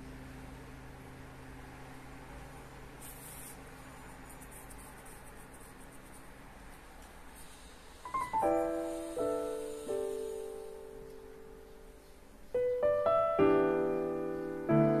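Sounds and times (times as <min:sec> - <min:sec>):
faint steady hum: 0:00.0 - 0:15.0
soft rustle: 0:03.0 - 0:08.4
solo piano music: 0:08.0 - 0:15.0.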